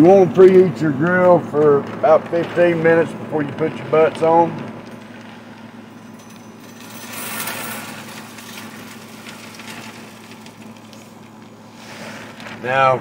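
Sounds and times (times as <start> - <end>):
grill humming: 0.0 - 13.0
pellets pouring rattling hiss: 3.7 - 13.0.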